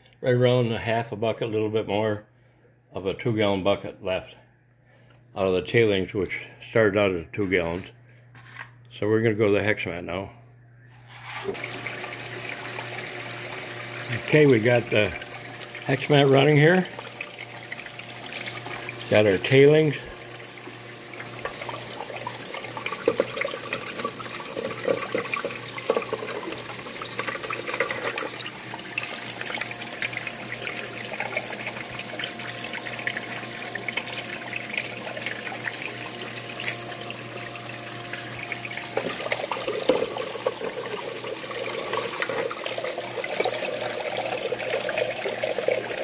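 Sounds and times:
steady low hum: 3.9s - 11.5s
water running down a sluice: 11.5s - 46.0s.

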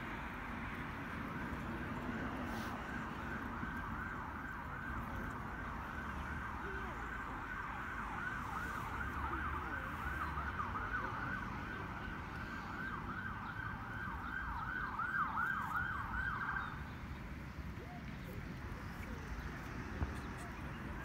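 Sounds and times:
siren on fast yelp: 5.9s - 16.8s.

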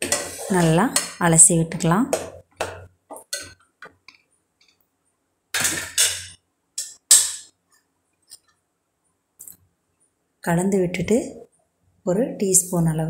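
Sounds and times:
spatula knocking on pressure cooker: 2.1s - 2.9s.

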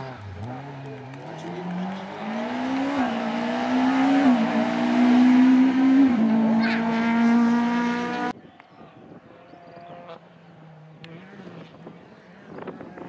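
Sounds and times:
rally car engine revving: 0.0s - 8.3s.

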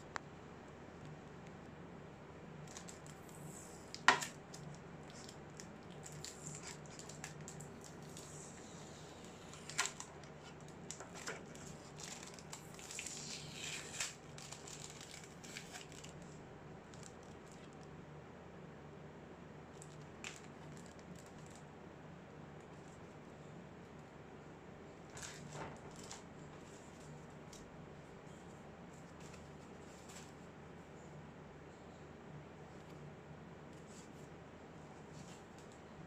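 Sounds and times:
plastic wrap crinkling: 2.7s - 16.3s.

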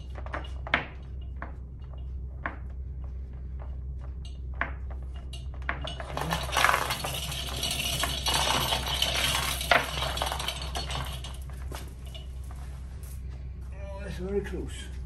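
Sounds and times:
hoist chain clinking and rattling: 0.0s - 2.1s, 4.2s - 13.2s
low steady hum: 0.0s - 15.0s.

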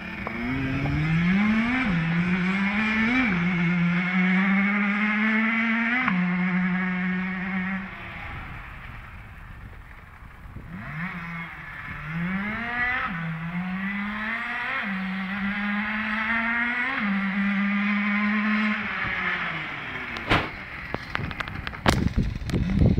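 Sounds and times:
motorcycle engine revving: 0.0s - 22.9s
sharp knock: 20.2s - 20.6s.

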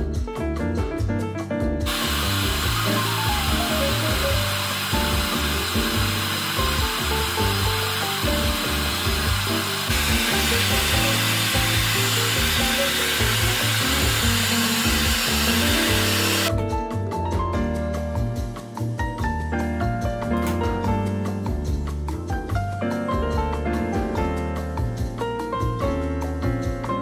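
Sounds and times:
background music: 0.0s - 27.0s
hair dryer blowing: 1.9s - 16.5s.

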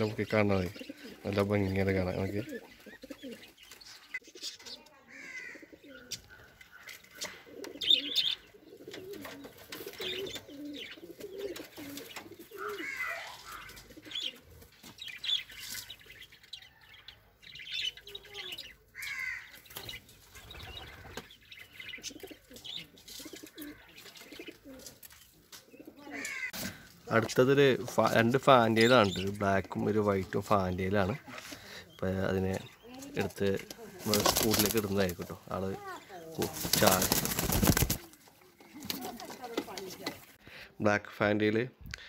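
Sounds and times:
pigeons cooing: 0.0s - 16.3s, 17.1s - 27.0s
high bird chirps: 2.4s - 8.8s, 10.0s - 26.6s.

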